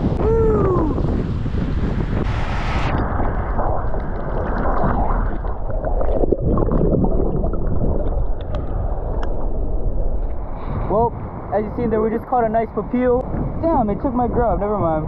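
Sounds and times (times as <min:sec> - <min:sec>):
underwater sloshing and gurgling: 0:02.4 - 0:11.5
small underwater clicks and pops: 0:08.0 - 0:09.4.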